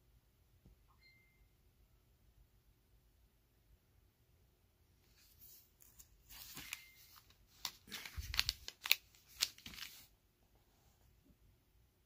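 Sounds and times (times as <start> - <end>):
paper pages rustling: 5.0 - 10.2.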